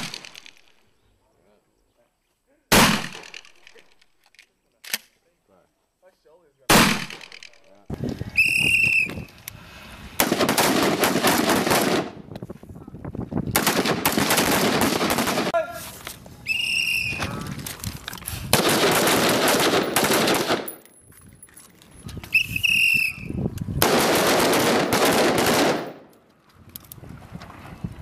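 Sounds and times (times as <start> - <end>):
rapid rifle fire: 10.2 - 12.2, 13.6 - 15.6, 18.5 - 20.8, 23.8 - 26.0.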